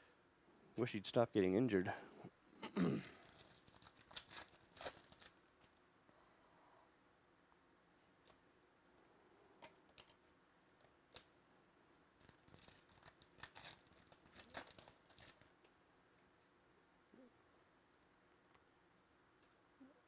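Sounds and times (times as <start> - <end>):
foil wrapper crinkling and tearing: 3.1 - 5.8, 12.2 - 15.7.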